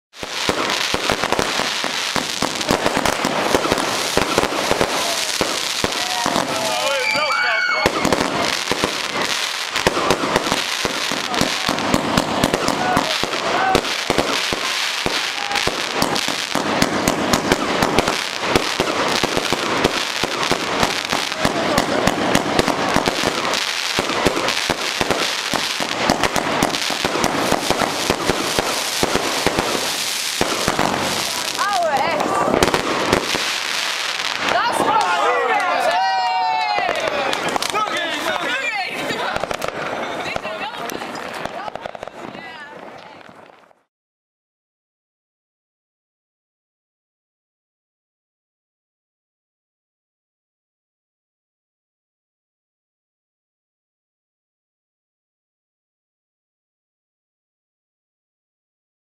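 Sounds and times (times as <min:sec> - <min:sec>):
fireworks bangs: 0:00.1 - 0:43.8
hiss of burning fireworks: 0:00.1 - 0:43.9.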